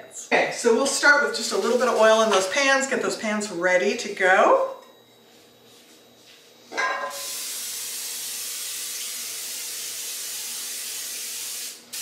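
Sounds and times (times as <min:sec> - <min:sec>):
aerosol spray hiss: 0:07.1 - 0:12.0.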